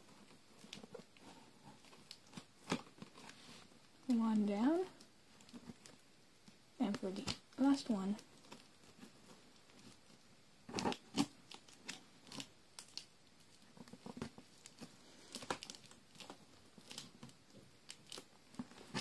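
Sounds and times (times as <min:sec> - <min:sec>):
packing tape tearing: 0:10.7 - 0:13.1.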